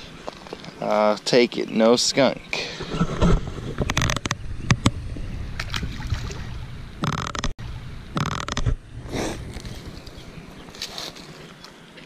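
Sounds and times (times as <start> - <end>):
wind buffeting microphone: 2.7 - 7.0.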